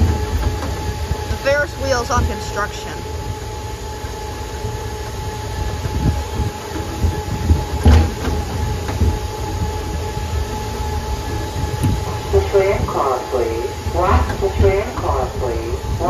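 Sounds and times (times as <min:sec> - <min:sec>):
steady whine: 0:00.0 - 0:16.0
tram car rumbling: 0:00.0 - 0:16.0
knocks and bumps: 0:05.7 - 0:10.0.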